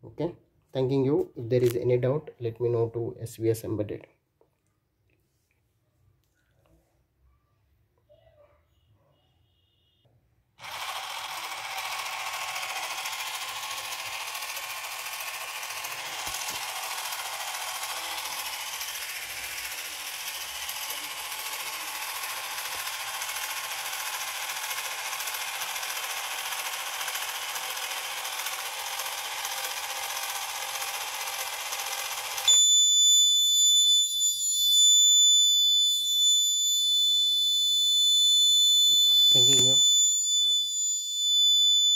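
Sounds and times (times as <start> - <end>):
high buzzer beep: 9.4 - 10.1, 32.4 - 41.9
small motors whirring: 10.6 - 41.9.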